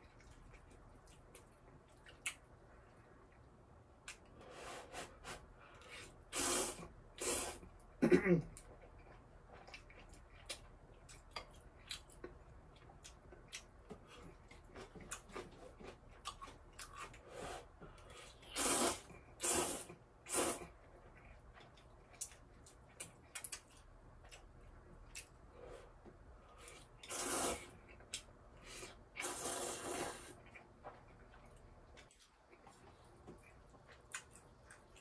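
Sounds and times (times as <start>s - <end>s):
soft chewing: 0.0s - 6.3s, 7.1s - 35.0s
noodle slurping: 18.4s - 20.8s, 27.0s - 27.8s, 29.2s - 30.4s.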